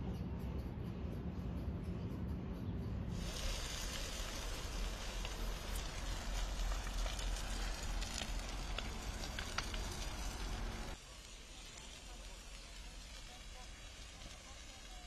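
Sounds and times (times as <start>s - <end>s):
low rumble: 0.1s - 11.0s
fire crackling and popping: 3.1s - 15.0s
fire hissing: 3.1s - 15.0s.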